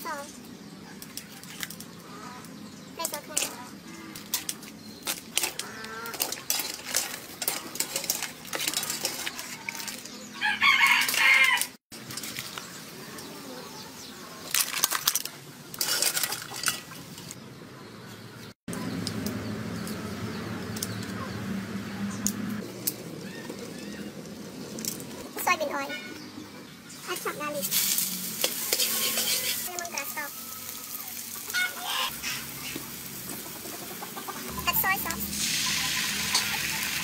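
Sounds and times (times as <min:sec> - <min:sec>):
pots and utensils clinking: 0:04.2 - 0:10.3, 0:14.5 - 0:17.3, 0:27.2 - 0:30.3, 0:34.5 - 0:37.0
rooster crowing: 0:10.4 - 0:11.8, 0:30.2 - 0:32.5.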